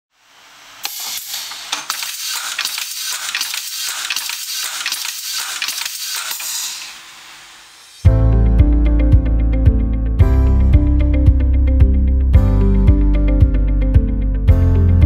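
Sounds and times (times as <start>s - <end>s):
high hiss: 0.1s - 8.1s
sharp metallic clicks and clinks: 0.8s - 6.9s.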